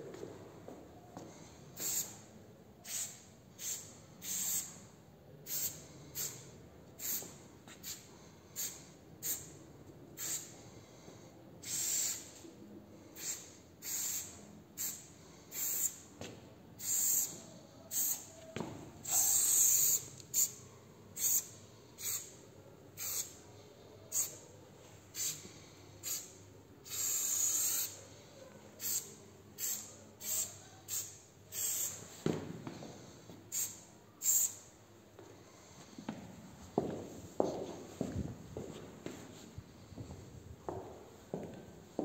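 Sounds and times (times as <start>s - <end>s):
aerosol spray can hissing: 1.8s - 2.2s, 2.8s - 4.8s, 5.5s - 6.4s, 8.6s - 9.5s, 10.2s - 10.5s, 11.6s - 12.3s, 13.2s - 16.0s, 16.8s - 18.3s, 19.0s - 20.6s, 21.2s - 22.4s, 23.0s - 23.4s, 24.1s - 24.4s, 25.1s - 25.4s, 26.0s - 28.0s, 28.8s - 32.0s, 33.5s - 34.7s.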